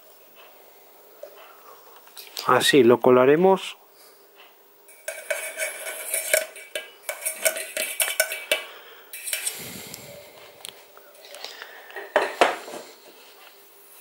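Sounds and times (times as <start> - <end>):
saucepan clinking on metal sieve: 4.9 - 9.5.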